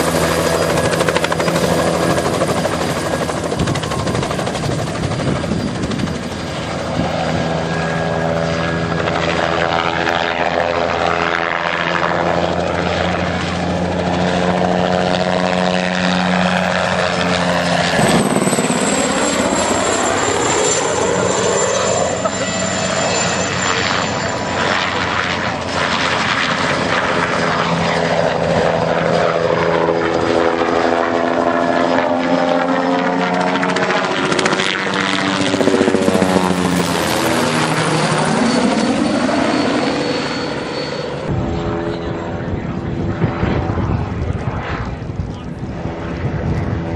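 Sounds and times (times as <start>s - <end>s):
helicopter rotor beat: 0.0s - 46.9s
turbine whine: 0.0s - 46.9s.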